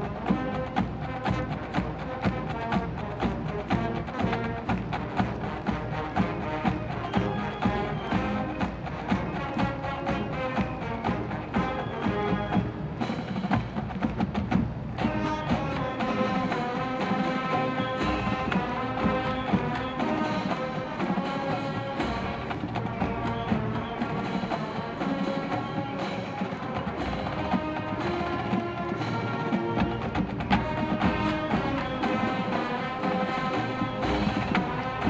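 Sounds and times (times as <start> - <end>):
drumline beat: 0.0 - 35.0
wind section playing tune: 0.0 - 35.0.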